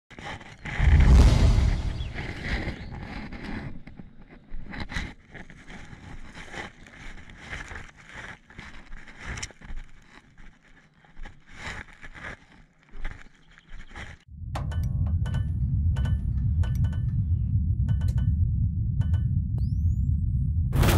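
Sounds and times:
footsteps on a trail: 1.9 - 14.3
plants and clothing rustling: 2.2 - 14.3.

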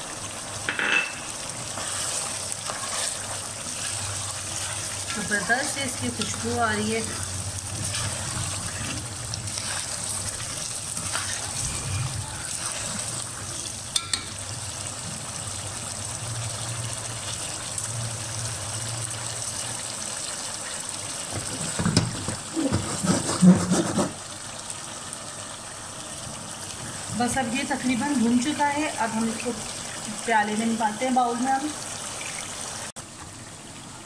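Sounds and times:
food sizzling in oil: 0.0 - 33.0
spoon knocking and scraping pan: 0.7 - 2.0, 21.3 - 24.2.

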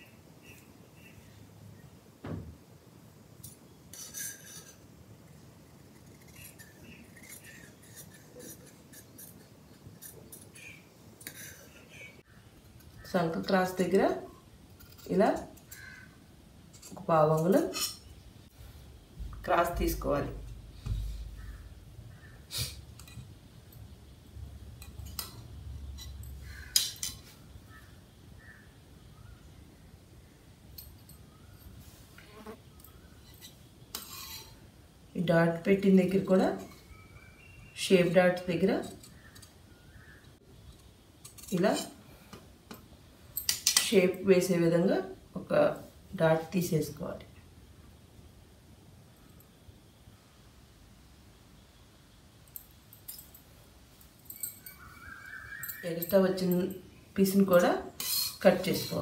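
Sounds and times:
dull thump: 2.2 - 2.6
scissors clinking on stone floor: 54.3 - 54.9, 57.5 - 59.0.

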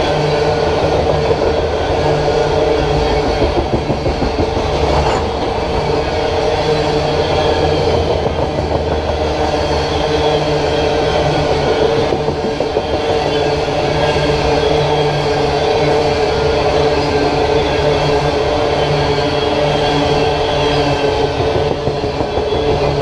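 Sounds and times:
freight train wheels on rails: 0.0 - 23.0
steady tones: 1.0 - 11.4.

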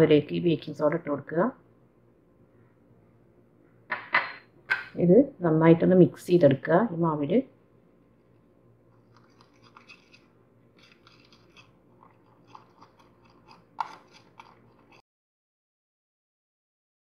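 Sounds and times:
spoon scraping and clicking: 8.9 - 15.0.

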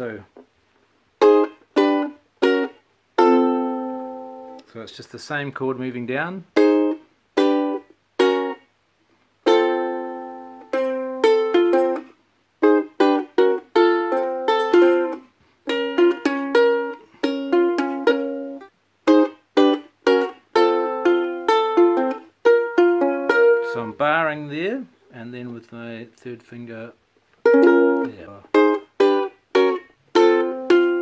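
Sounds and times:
ukulele strumming chords: 1.2 - 4.6, 6.5 - 8.7, 9.4 - 24.8, 27.4 - 31.0.

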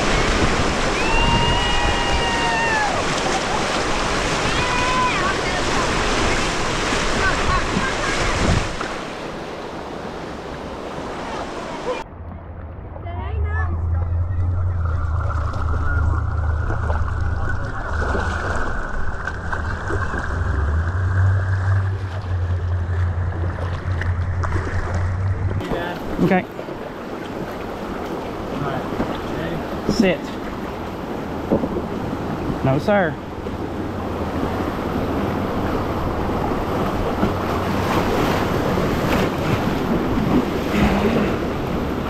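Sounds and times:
wind buffeting microphone: 0.0 - 8.9
rushing whitewater: 0.0 - 12.0
river water rushing and lapping: 0.0 - 12.9, 13.7 - 42.0
low rumble: 12.0 - 25.7.

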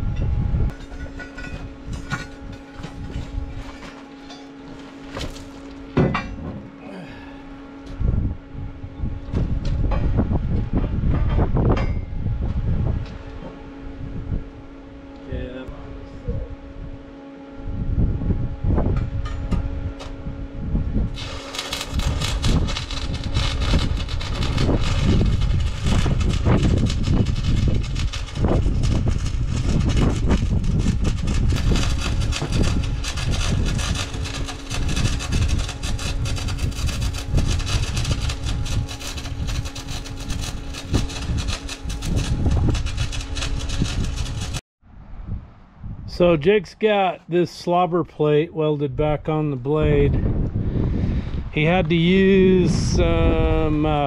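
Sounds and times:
low hum: 0.0 - 46.8
stick welding arc crackle: 21.1 - 44.6.

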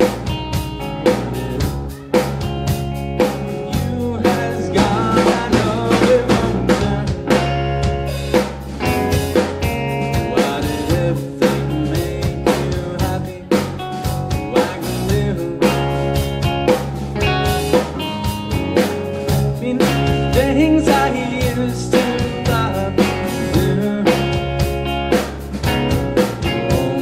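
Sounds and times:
drum kit beat: 0.0 - 27.0
electric guitar: 0.0 - 27.0.

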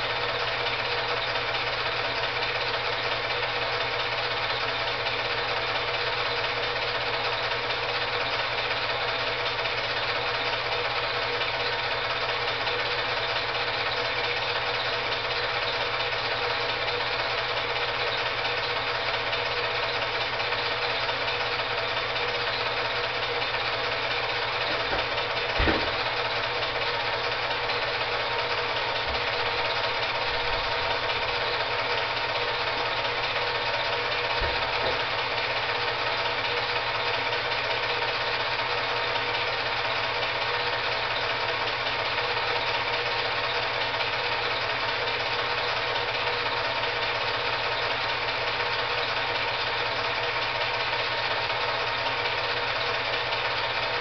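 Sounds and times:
film projector whirring and clatter: 0.0 - 54.0
brief knocks: 24.8 - 26.0.

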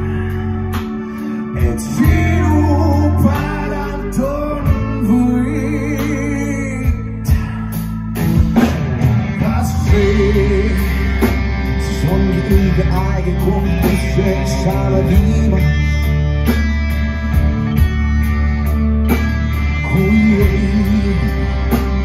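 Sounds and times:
man singing: 0.0 - 8.2, 9.1 - 16.2, 19.7 - 22.0
bass guitar: 0.0 - 22.0
drum kit: 0.0 - 22.0
electric guitars: 0.0 - 22.0.

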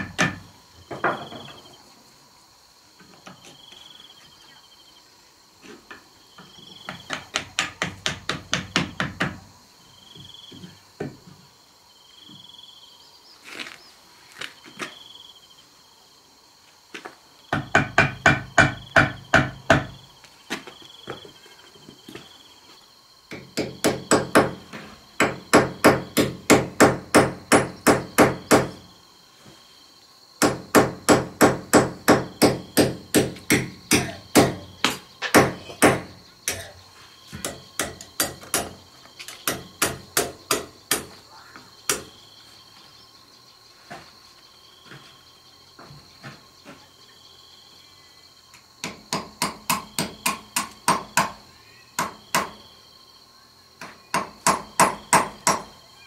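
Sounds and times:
hammer striking wood: 0.0 - 1.4, 6.9 - 9.4, 17.5 - 20.0, 23.3 - 24.6, 25.2 - 28.8, 30.4 - 36.6, 37.4 - 38.8, 39.4 - 41.2, 41.9 - 42.1, 48.8 - 51.4, 52.0 - 52.6, 53.8 - 55.8.

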